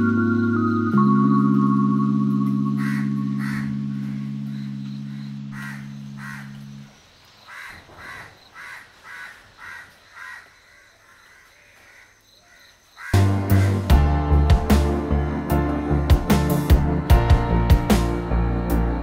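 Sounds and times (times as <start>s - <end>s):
music: 0.0s - 5.9s, 13.2s - 19.0s
low held musical tone: 0.0s - 6.9s
crow cawing: 2.8s - 4.3s, 5.5s - 6.6s, 7.4s - 14.2s.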